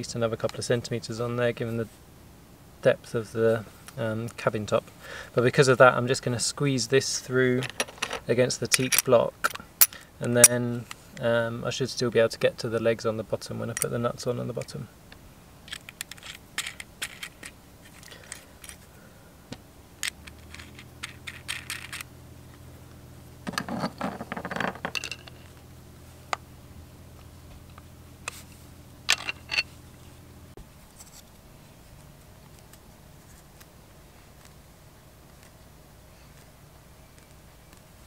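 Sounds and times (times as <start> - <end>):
low steady hum: 0.0 - 38.0
rustling handling noise: 15.6 - 19.0, 23.3 - 26.4, 27.1 - 38.0
metal clicks and clinks: 29.1 - 29.7.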